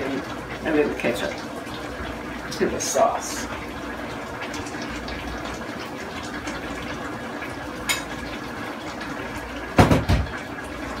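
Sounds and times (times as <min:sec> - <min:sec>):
sauce simmering in a frying pan: 0:00.0 - 0:11.0
sharp knocks: 0:09.8 - 0:10.3.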